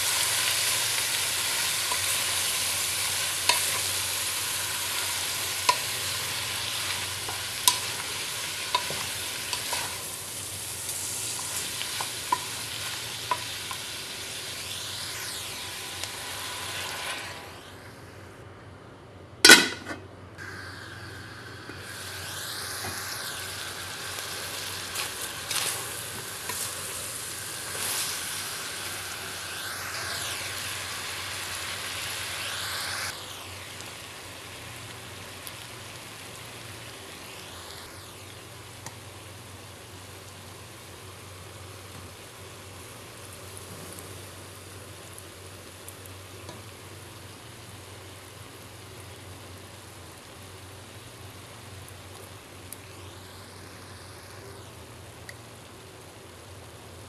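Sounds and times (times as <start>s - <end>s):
beef sizzling in a metal pot: 0.0s - 18.0s, 19.4s - 57.0s
metal lid clanging: 19.4s - 20.0s.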